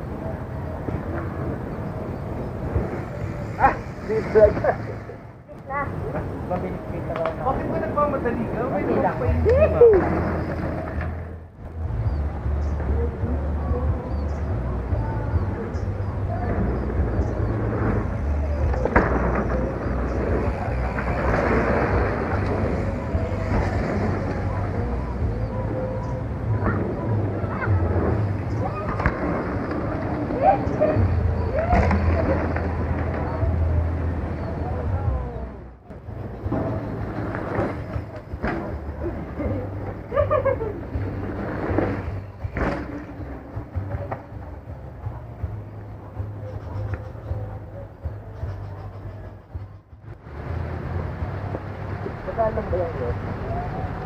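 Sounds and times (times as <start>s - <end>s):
wind rumbling on microphone: 0.0s - 54.0s
bike tyres on dirt: 15.8s - 25.8s, 36.1s - 44.8s.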